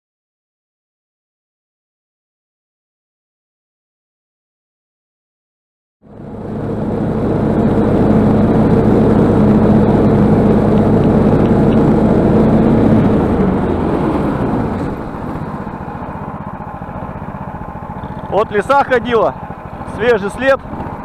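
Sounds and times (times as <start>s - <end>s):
snowmobile engine running: 6.0s - 21.0s.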